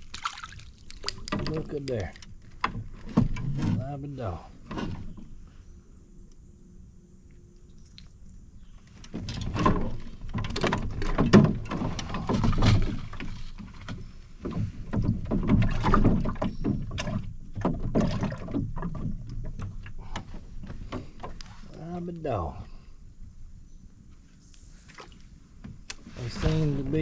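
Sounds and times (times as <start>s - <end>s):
paddle splashing water: 0.0s - 1.7s, 9.2s - 21.7s.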